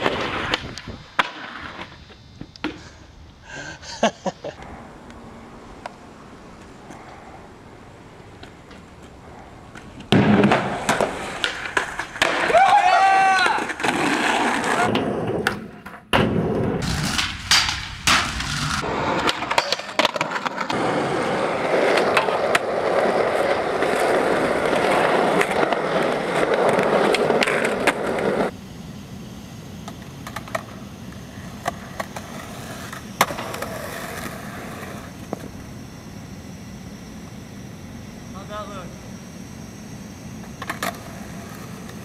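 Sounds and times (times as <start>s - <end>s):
quiet ambience: 0.0s - 12.5s, 13.5s - 42.0s
skateboard wheels rolling on pavement: 0.0s - 42.0s
skateboard tail clacks: 8.3s - 28.5s, 29.8s - 35.6s.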